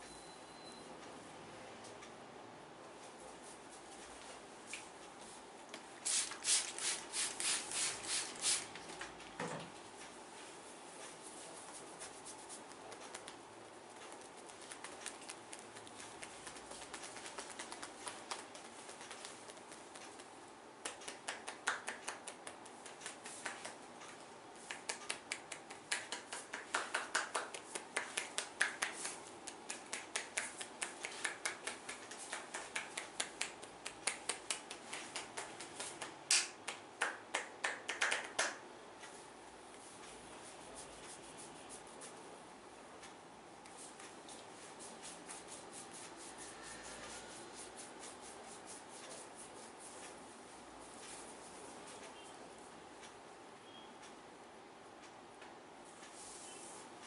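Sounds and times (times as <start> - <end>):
fingers rubbing through hair: 6.0 - 8.9, 11.0 - 42.2, 43.7 - 52.0, 56.0 - 57.0
hands tapping and snapping: 14.1 - 23.8, 24.6 - 38.6.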